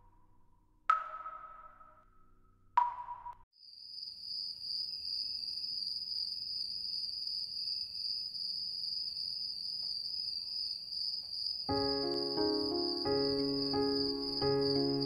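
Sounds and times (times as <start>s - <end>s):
crickets chirring: 3.7s - 15.0s.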